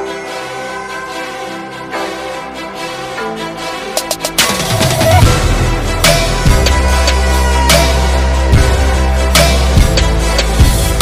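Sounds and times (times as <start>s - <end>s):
music with deep bass and slow beat: 4.0s - 11.0s.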